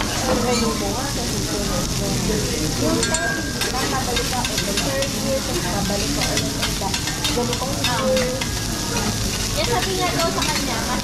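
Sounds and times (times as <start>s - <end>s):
food sizzling on a griddle: 0.0s - 11.0s
metal spatula scraping hot plate: 3.0s - 11.0s.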